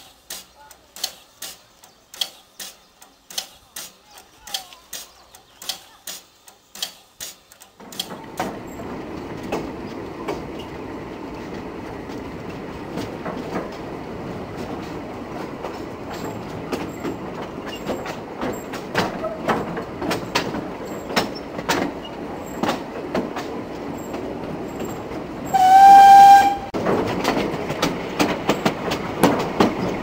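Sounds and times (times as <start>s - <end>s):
railway carriage wheels rumbling: 0.0s - 30.0s
wheels clattering over rail joints: 0.0s - 30.0s
sharp ticking clicks: 0.2s - 8.2s.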